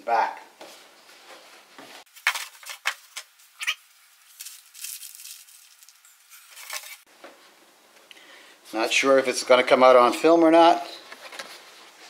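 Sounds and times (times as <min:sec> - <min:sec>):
plastic bag rustling: 0:02.0 - 0:07.1.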